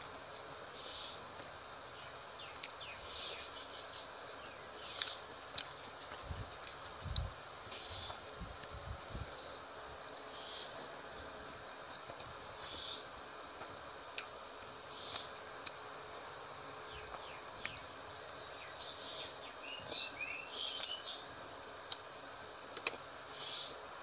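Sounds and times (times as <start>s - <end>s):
steady low hiss: 0.0s - 24.0s
wet chewing and lip-smacking: 1.3s - 7.4s, 13.6s - 17.9s, 21.8s - 23.0s.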